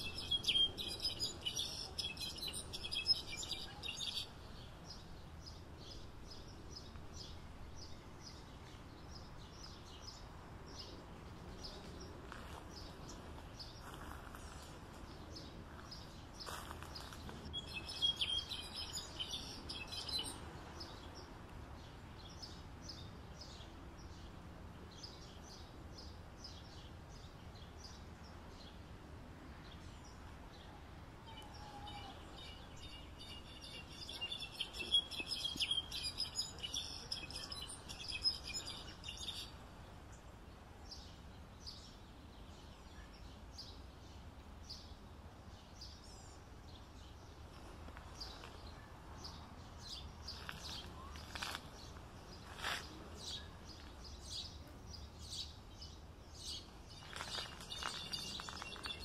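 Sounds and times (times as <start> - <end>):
bird chirps: 0.0 - 5.0, 17.5 - 20.4, 31.3 - 39.6, 48.2 - 59.0
bird twittering and trills: 0.0 - 12.2, 12.8 - 21.4, 31.3 - 59.0.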